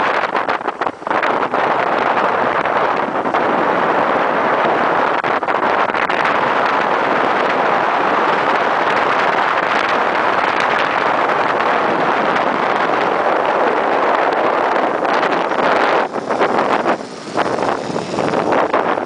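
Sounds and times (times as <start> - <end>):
wind buffeting microphone: 0.0 - 19.0
motorcycle engine: 4.2 - 19.0.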